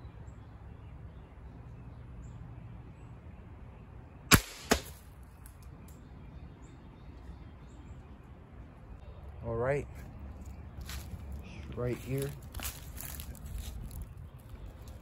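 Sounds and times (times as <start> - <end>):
air rifle shot crack: 4.3 - 5.1.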